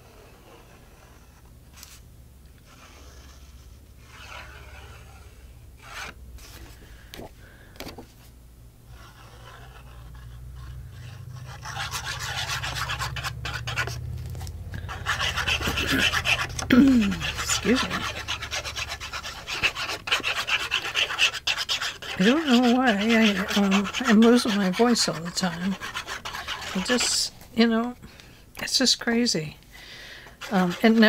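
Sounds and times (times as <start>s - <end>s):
hands rubbing paper: 9.0s - 27.4s, 30.3s - 31.0s.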